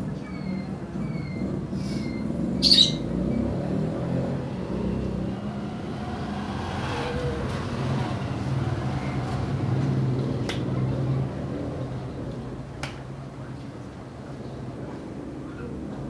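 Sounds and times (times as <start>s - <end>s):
sharp loud squawk: 1.9s - 3.0s.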